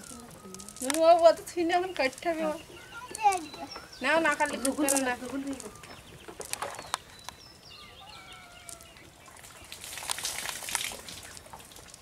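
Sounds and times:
faint bird calls: 0:02.5 - 0:09.7.

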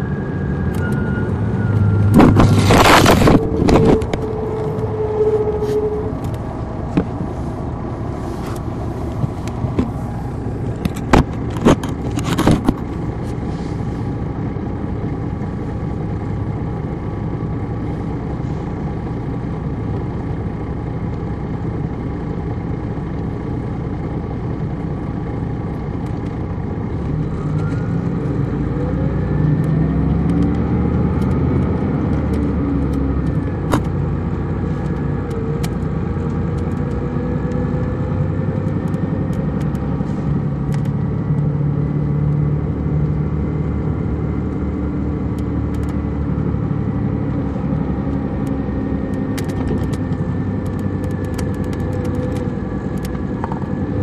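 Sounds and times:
rising whine: 0:00.0 - 0:13.2, 0:26.8 - 0:54.0
bus engine running: 0:00.0 - 0:54.0
sharp clicks: 0:48.4 - 0:53.6.

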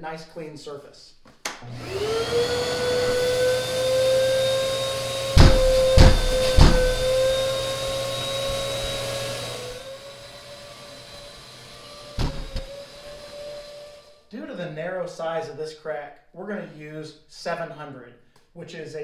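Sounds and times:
vacuum cleaner whine: 0:01.6 - 0:14.2
loud knocks: 0:05.3 - 0:07.8, 0:12.2 - 0:12.7.

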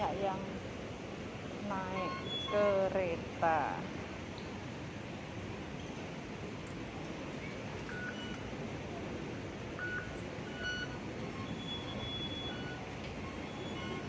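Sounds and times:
station concourse hum: 0:00.0 - 0:14.0
card reader beeps: 0:09.8 - 0:14.0.

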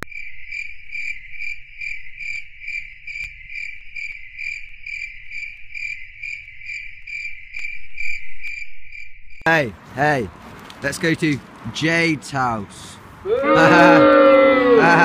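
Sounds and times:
faint low traffic rumble: 0:09.5 - 0:15.0
pedestrian crossing beeping: 0:10.8 - 0:15.0.

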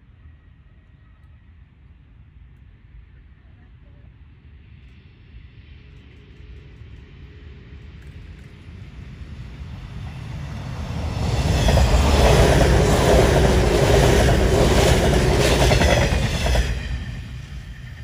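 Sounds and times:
electric train passing: 0:05.3 - 0:18.0
train wheels clicking on rails: 0:10.0 - 0:18.0.

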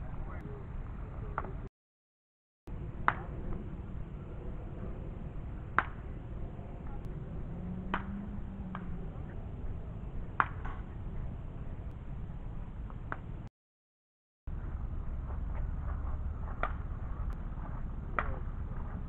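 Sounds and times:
outdoor background noise: 0:00.0 - 0:01.7, 0:02.7 - 0:13.5, 0:14.5 - 0:19.0
bat cracking baseballs: 0:07.9 - 0:09.0, 0:10.3 - 0:10.9, 0:16.5 - 0:16.8.

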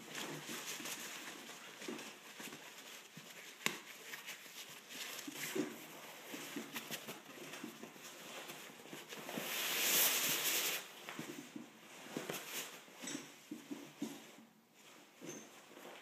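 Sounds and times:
sleeping bag fabric rustling: 0:00.0 - 0:13.1, 0:13.7 - 0:16.0
small scuffs and knocks: 0:00.0 - 0:16.0.

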